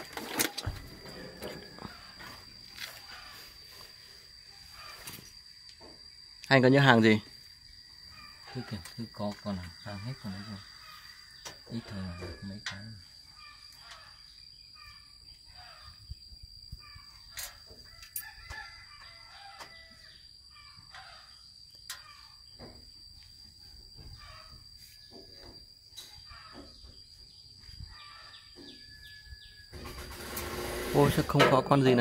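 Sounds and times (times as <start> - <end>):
steady high-pitched whine: 0.0 - 7.5
rooster crowing: 0.6 - 2.5, 9.8 - 11.5, 17.8 - 20.2.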